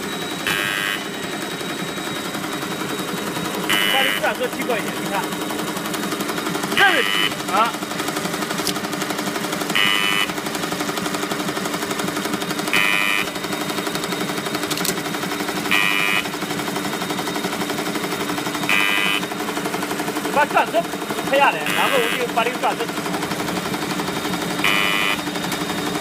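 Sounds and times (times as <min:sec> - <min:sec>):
higher-pitched machine burst: 0:00.0 - 0:07.8, 0:17.8 - 0:19.4
machine hum: 0:00.0 - 0:26.0
packing machine clattering: 0:01.0 - 0:26.0.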